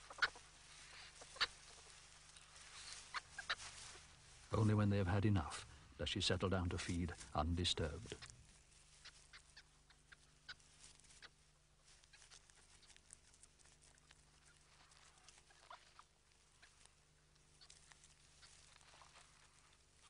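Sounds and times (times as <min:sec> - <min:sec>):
low steady hum: 0:00.0 - 0:20.0
animal chewing and tearing: 0:11.8 - 0:20.0.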